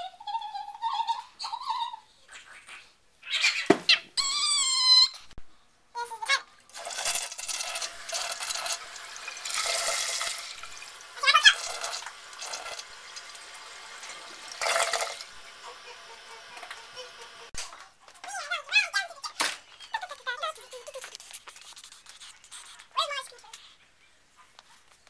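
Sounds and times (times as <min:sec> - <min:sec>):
brief high-pitched squeal: 0:04.2 - 0:05.2
toilet flushing: 0:06.7 - 0:17.6.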